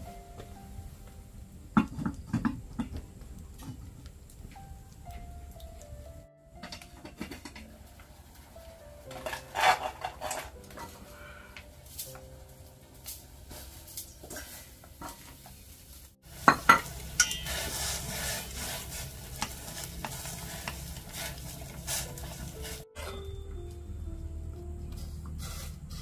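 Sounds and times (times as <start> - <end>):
food sizzling in hot pan: 15.5 - 22.8
utensil knocking on pan: 16.5 - 17.7.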